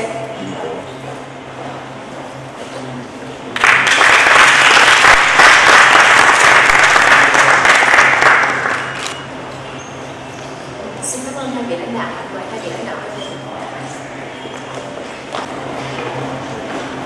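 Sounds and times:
audience applauding: 0:03.6 - 0:09.2.

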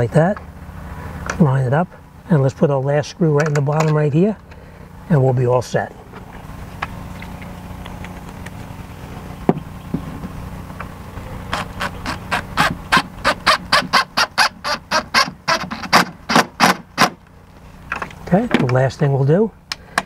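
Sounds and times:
steady low hum: 0:00.0 - 0:20.0
impact driver bursts: 0:11.5 - 0:17.2.

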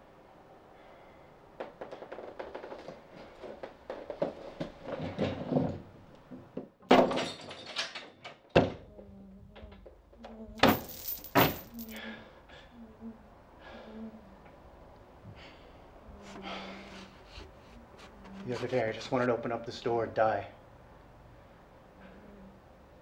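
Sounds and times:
heavy thuds on door: 0:10.6 - 0:11.7.

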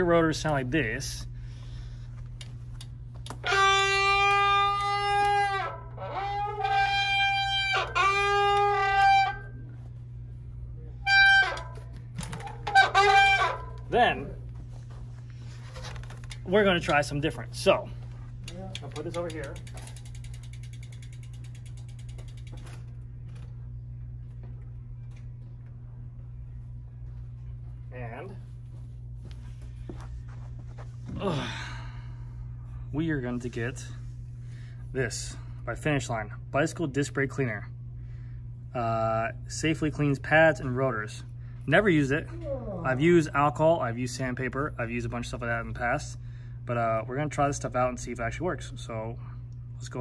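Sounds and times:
steady low hum: 0:00.0 - 0:50.0
bike freewheel hub ticking: 0:02.8 - 0:09.5, 0:18.4 - 0:23.4
bicycle disc brake squealing: 0:03.3 - 0:09.6, 0:11.0 - 0:13.8.

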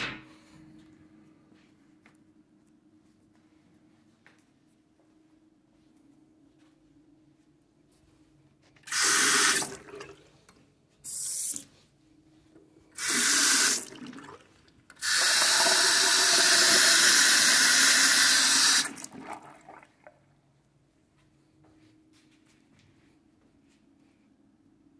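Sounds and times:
faucet running into basin: 0:08.9 - 0:10.3, 0:13.0 - 0:20.1.

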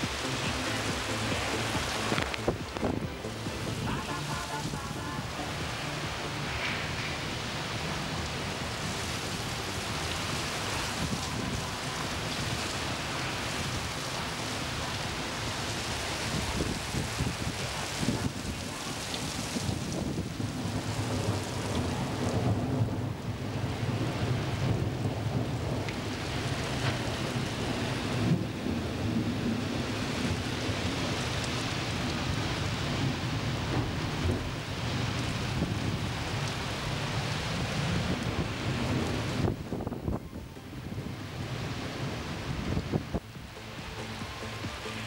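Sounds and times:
heavy rain pouring: 0:00.0 - 0:45.0
strong wind: 0:00.0 - 0:45.0
low thunder rumble: 0:16.2 - 0:43.2.

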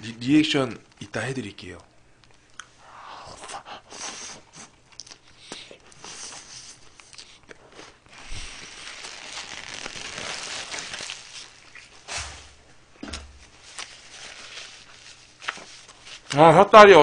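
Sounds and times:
person chewing: 0:02.3 - 0:06.1
paper wrapper crinkling: 0:06.9 - 0:12.5, 0:13.4 - 0:17.0.

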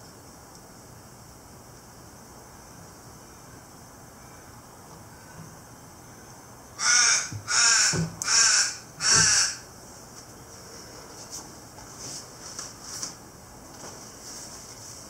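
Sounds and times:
crow cawing: 0:06.8 - 0:09.7.

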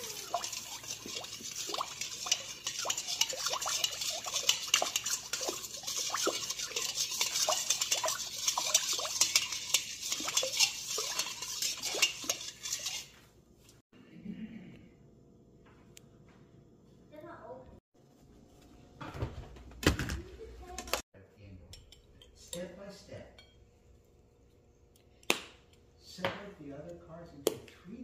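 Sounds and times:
water stirred in metal bowl: 0:00.0 - 0:13.8.

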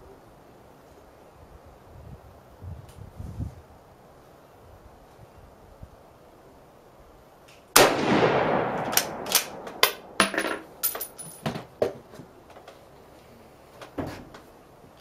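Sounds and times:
rifle shot with ringing decay: 0:07.8 - 0:10.2
metallic clicks of rifle handling: 0:08.8 - 0:10.1.

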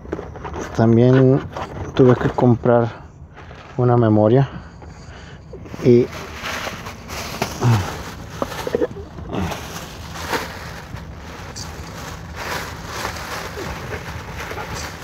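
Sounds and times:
plastic bag rustling: 0:05.6 - 0:15.0
voice murmur: 0:07.5 - 0:09.7.

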